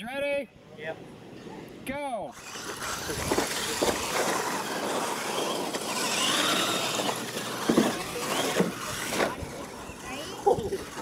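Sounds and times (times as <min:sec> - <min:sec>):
toy truck motor whine: 0:02.3 - 0:11.0.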